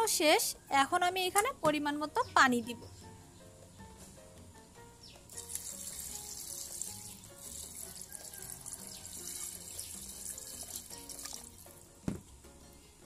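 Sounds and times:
water pouring into pot: 5.3s - 11.8s.

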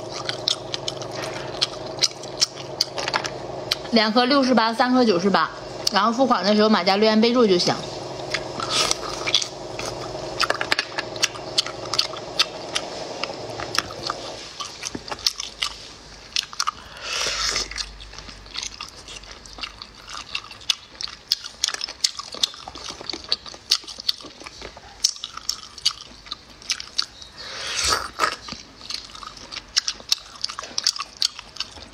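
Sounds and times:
close-miked eating and chewing: 0.0s - 31.9s
slurps: 7.8s - 19.9s, 27.0s - 29.6s.

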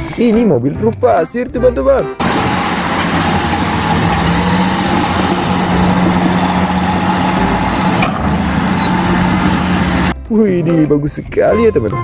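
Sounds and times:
diesel truck engine droning: 1.1s - 10.2s.

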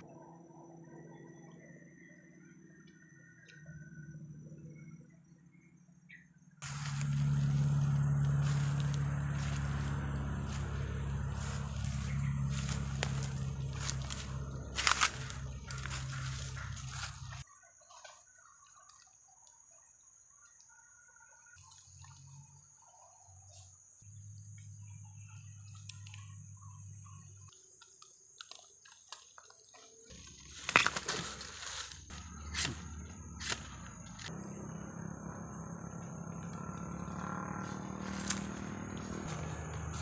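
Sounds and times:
faint bird chirps: 0.0s - 7.1s
footsteps crackling on dry leaves: 6.6s - 17.4s, 30.0s - 34.3s, 37.0s - 40.0s.

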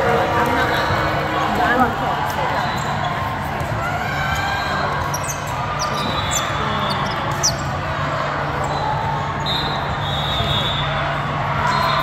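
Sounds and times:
balls bouncing on hard court: 0.0s - 7.9s
general din of hall: 0.0s - 12.0s
sneakers squeaking: 0.0s - 12.0s.

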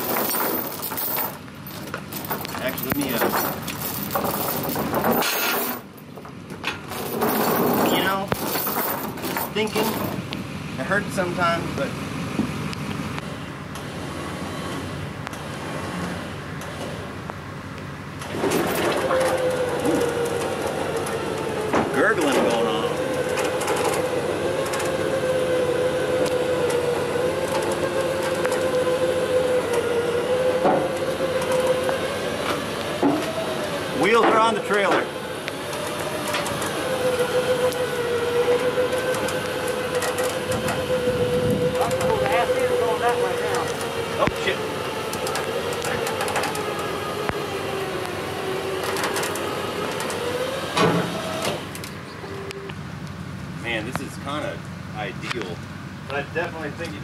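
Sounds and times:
winch motor whining: 18.1s - 55.4s.

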